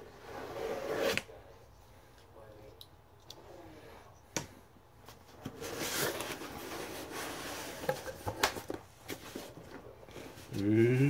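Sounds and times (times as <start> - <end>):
cardboard rustling and scraping: 0.1 - 1.4, 5.1 - 10.6.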